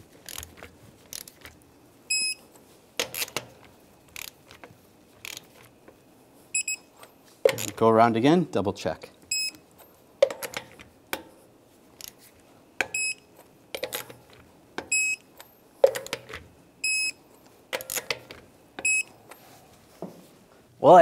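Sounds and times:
wrench clicking on nuts: 4.2 - 4.4
torque wrench double beeps: 9.3 - 9.6, 13.0 - 13.2, 14.9 - 15.2, 16.8 - 17.2.

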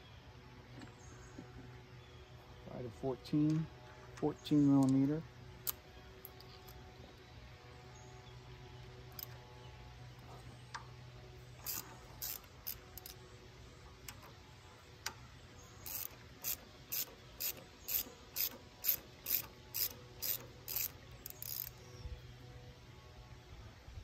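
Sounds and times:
ratchet wrench clicking: 11.6 - 13.2, 15.8 - 21.8.

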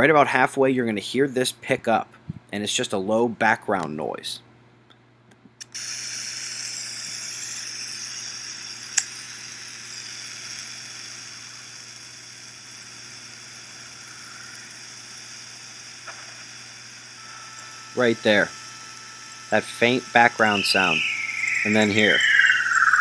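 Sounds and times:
steady hiss: 5.6 - 23.0.

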